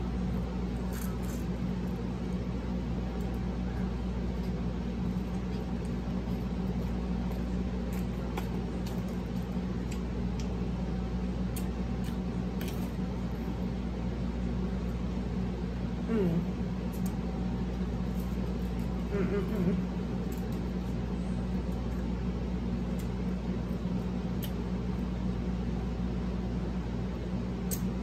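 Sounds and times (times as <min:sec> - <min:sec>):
low background hum: 0:00.0 - 0:28.0
eating smacks and clicks: 0:05.2 - 0:10.6, 0:24.3 - 0:24.6.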